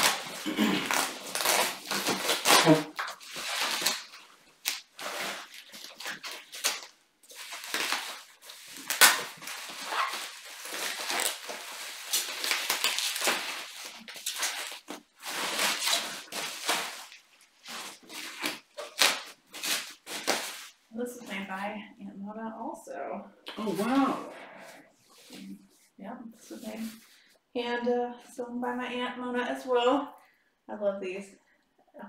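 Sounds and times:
bubble wrap crinkling: 0.0 - 20.8.

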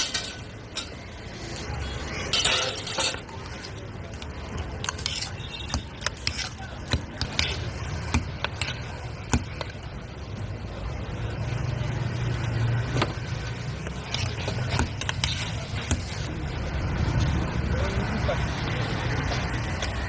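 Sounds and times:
road traffic rumble: 0.0 - 20.0
spoon scraping metal bowl: 4.8 - 9.0, 13.8 - 16.3.

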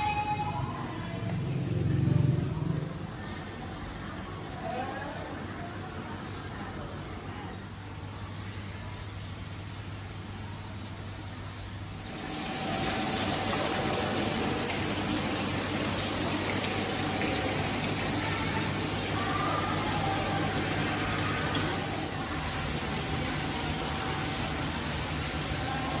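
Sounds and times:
aquarium filter water rushing: 0.0 - 26.0.

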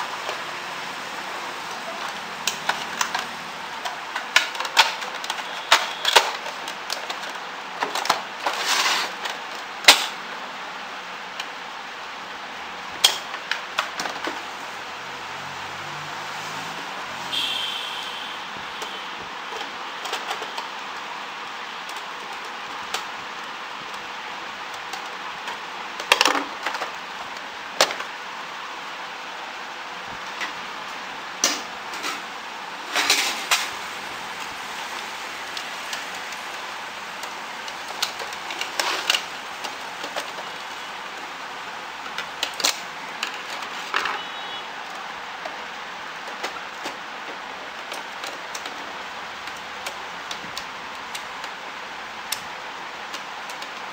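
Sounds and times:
printer parts clicking and knocking: 1.7 - 10.2
steady hiss: 26.9 - 53.9.

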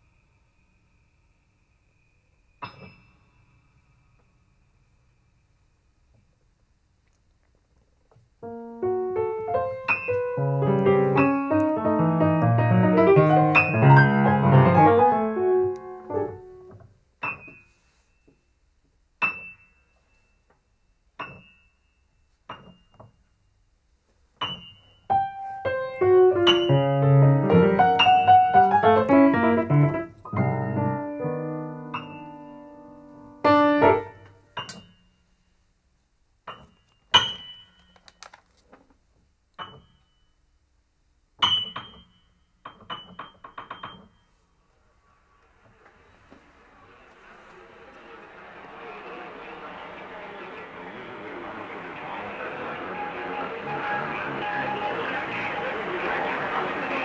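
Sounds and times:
grand piano playing: 8.4 - 16.7, 25.1 - 34.3, 46.8 - 57.0.

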